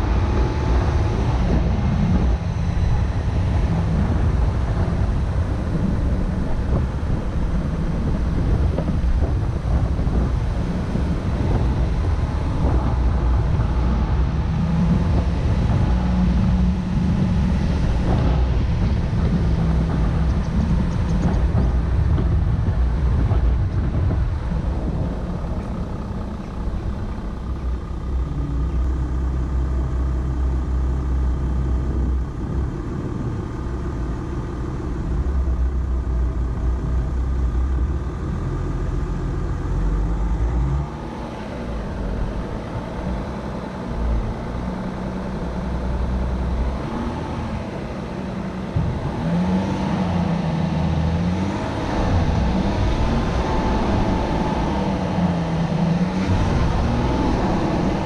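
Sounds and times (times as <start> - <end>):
pickup truck engine rumbling: 0.0 - 58.0
vehicle knocks: 17.2 - 28.2.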